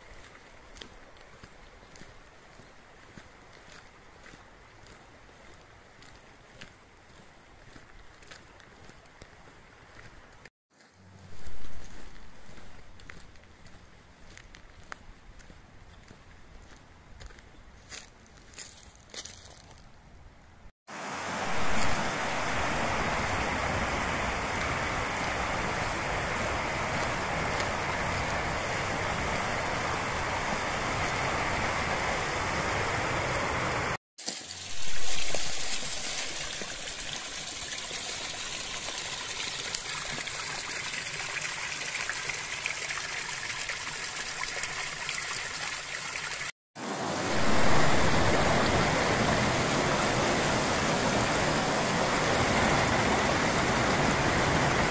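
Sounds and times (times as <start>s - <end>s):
small waterfall splashing into pool: 20.9s - 54.9s
stream water rushing: 20.9s - 54.9s.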